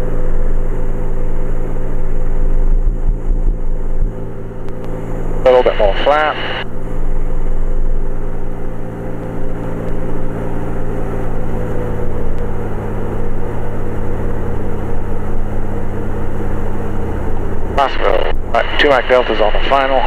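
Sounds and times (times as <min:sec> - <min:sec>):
aircraft engine and propeller drone: 0:00.0 - 0:20.0.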